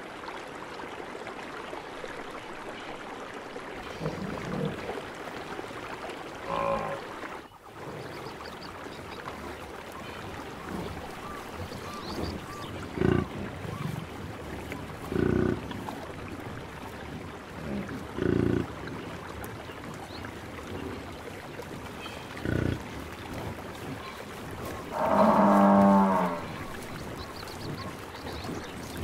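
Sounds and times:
buffalo grunting: 0:10.7 - 0:14.1, 0:15.0 - 0:15.8, 0:22.0 - 0:26.9
buffalo bellowing: 0:24.9 - 0:26.8.

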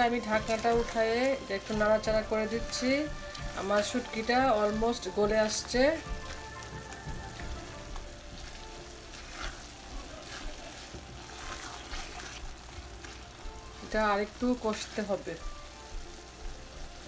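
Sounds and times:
curry sizzling in a pan: 0:00.0 - 0:17.0
spatula scraping a pan: 0:07.3 - 0:14.0.

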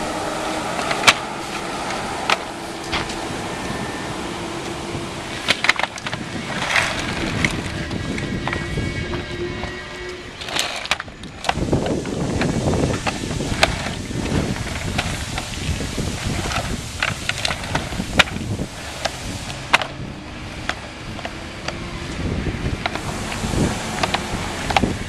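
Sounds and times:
plastic floor panels clacking: 0:00.8 - 0:03.2, 0:04.6 - 0:09.2, 0:10.4 - 0:20.0.

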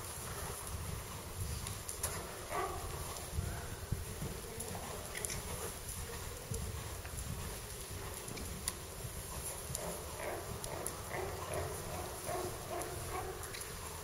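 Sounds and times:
horse trotting on sand: 0:00.0 - 0:14.0.

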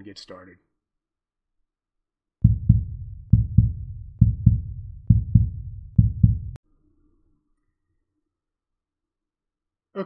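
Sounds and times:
heartbeat double thumps: 0:02.4 - 0:06.6.

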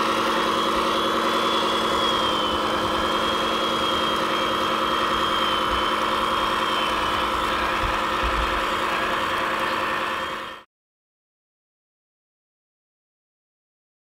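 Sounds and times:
toy truck engine idling: 0:00.0 - 0:10.7.

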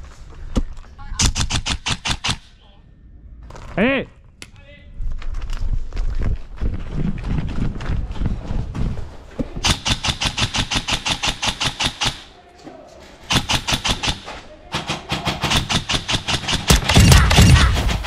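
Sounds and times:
airsoft rifle firing bursts: 0:09.6 - 0:12.2, 0:13.3 - 0:18.0.

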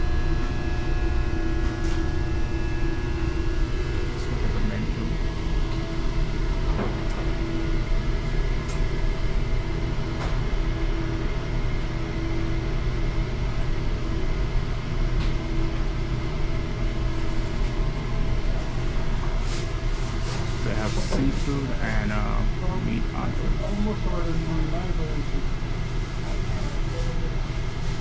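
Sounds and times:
humming tone: 0:00.0 - 0:11.3
low rumbling machinery hum: 0:00.0 - 0:28.0.

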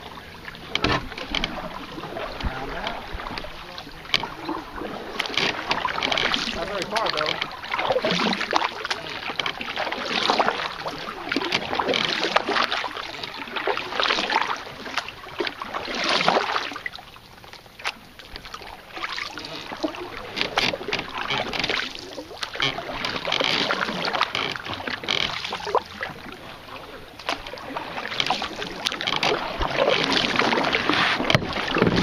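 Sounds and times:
paddle splashing through water: 0:00.0 - 0:32.0
light clicks and knocks: 0:00.6 - 0:01.6, 0:02.4 - 0:04.6, 0:19.6 - 0:25.9.

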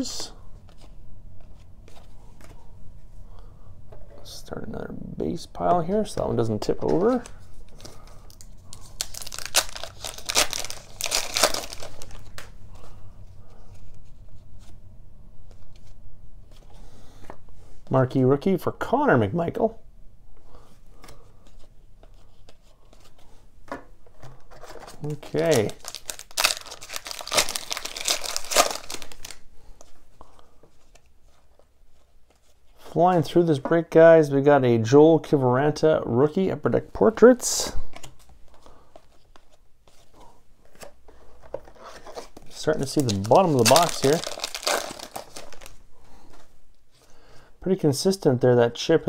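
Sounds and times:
foil wrapper tearing and crinkling: 0:08.8 - 0:12.5, 0:25.0 - 0:29.4, 0:42.2 - 0:45.8.

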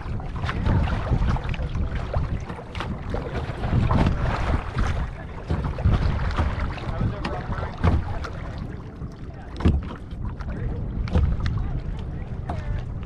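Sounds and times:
water slapping against bow: 0:00.0 - 0:13.0
wind buffeting microphone: 0:00.0 - 0:13.0.

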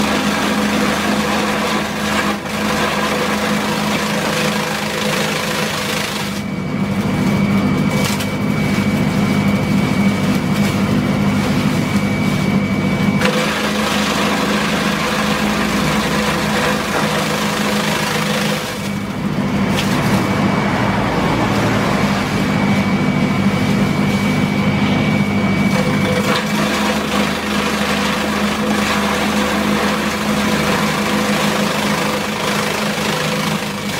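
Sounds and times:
chopper motor hum and whine: 0:00.0 - 0:33.9
blades shredding stalks: 0:13.2 - 0:22.8, 0:25.7 - 0:33.9.

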